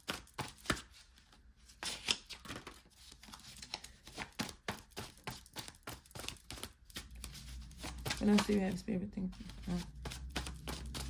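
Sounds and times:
cards slapping and clicking: 0.0s - 0.9s, 1.8s - 8.8s, 9.4s - 11.0s
cards shuffled by hand: 0.0s - 1.0s, 1.7s - 11.0s.

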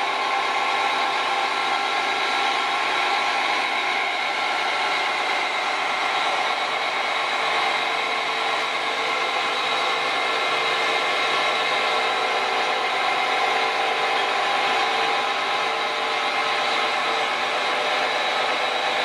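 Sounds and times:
crane engine droning: 0.0s - 19.0s.

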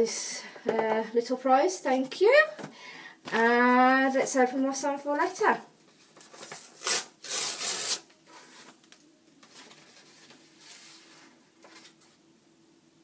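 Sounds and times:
paper rustling: 5.9s - 12.2s
paper envelope tearing: 6.3s - 8.7s.

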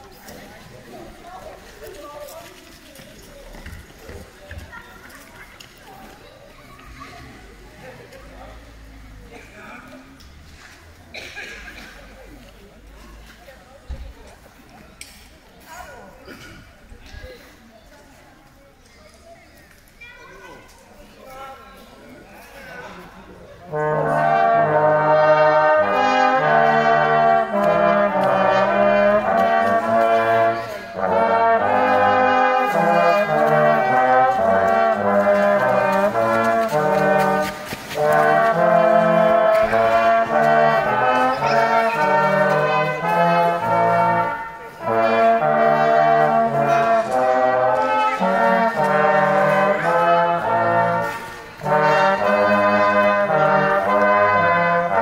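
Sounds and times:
brass choir playing chords: 23.6s - 55.0s.

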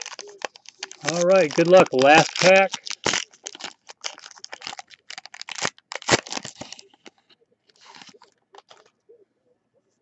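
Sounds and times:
foil wrapper tearing and crinkling: 0.0s - 7.2s, 7.8s - 8.9s.

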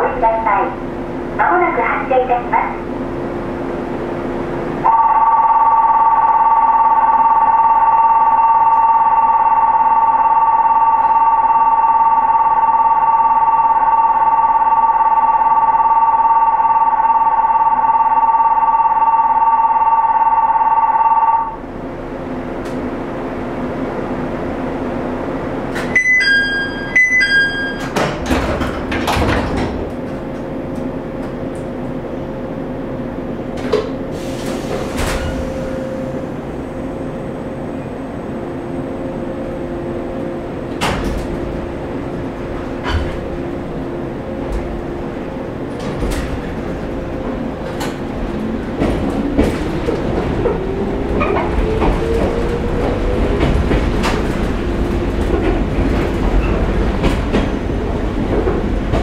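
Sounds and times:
train equipment humming: 21.6s - 59.0s
two-note door chime: 26.0s - 28.0s
sliding doors closing: 33.5s - 35.8s, 40.6s - 43.8s, 44.4s - 59.0s.

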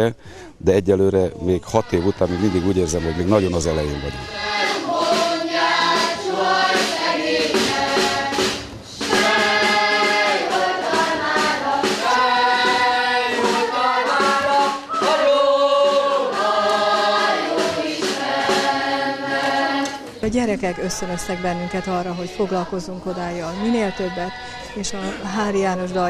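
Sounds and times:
children's choir singing: 1.7s - 26.0s
snare drum beating: 4.3s - 20.4s.

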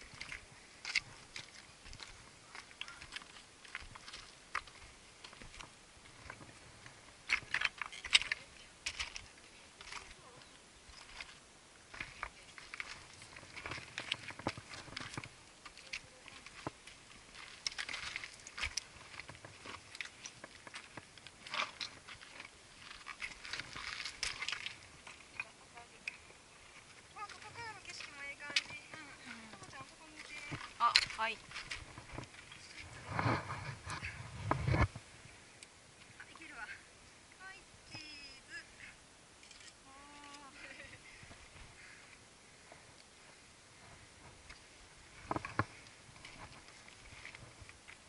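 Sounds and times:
footsteps on gravel: 0.0s - 34.9s.

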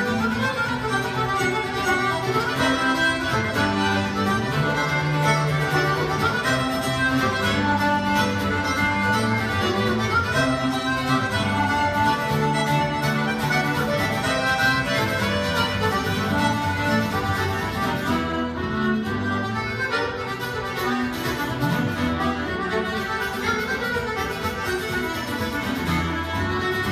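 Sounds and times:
accordion melody: 0.0s - 26.9s
fiddle melody: 0.0s - 26.9s
strummed acoustic guitar: 0.0s - 26.9s.

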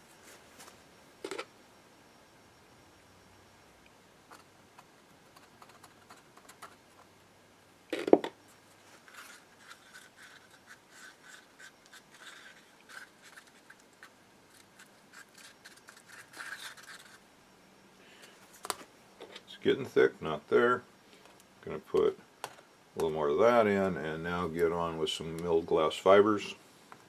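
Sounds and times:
wooden stick stirring in cup: 9.0s - 17.2s.

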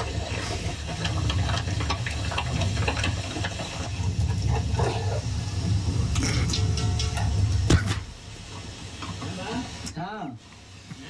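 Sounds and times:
stone pestle grinding rumble: 0.0s - 8.0s.

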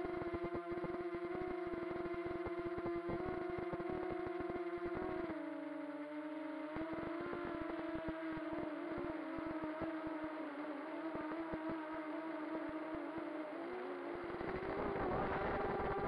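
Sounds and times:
crackles: 0.0s - 16.0s
drone motors whining: 6.6s - 16.0s.

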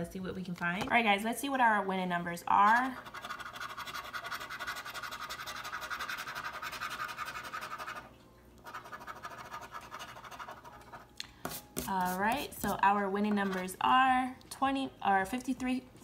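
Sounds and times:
coin scratching lottery ticket: 2.6s - 11.0s, 13.2s - 13.8s.

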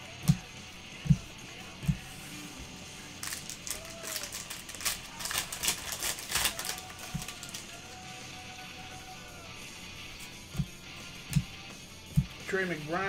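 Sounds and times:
foil wrapper crinkling and tearing: 3.2s - 8.0s.

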